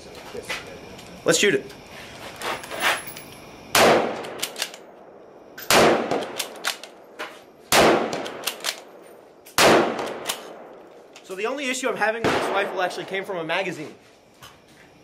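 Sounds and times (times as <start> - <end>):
rifle shots: 3.7 - 4.9, 5.6 - 7.0, 7.7 - 8.9, 9.5 - 10.8, 12.2 - 13.1
sharp clicks: 4.2 - 4.9, 5.6 - 7.0, 8.1 - 8.9, 9.5 - 11.4.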